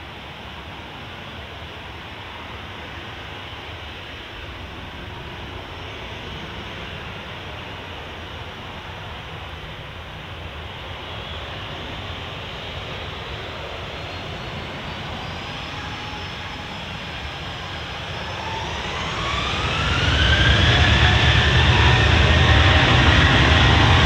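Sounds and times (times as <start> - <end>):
jet engines rumbling: 0.0 - 24.0
jet engines spooling up: 11.0 - 24.0.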